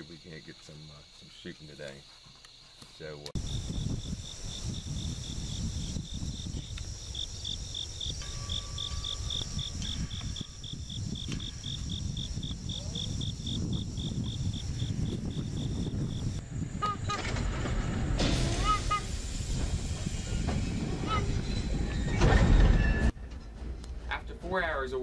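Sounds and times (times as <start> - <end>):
insects trilling: 0.0 - 17.1
cricket chirping: 0.0 - 23.1.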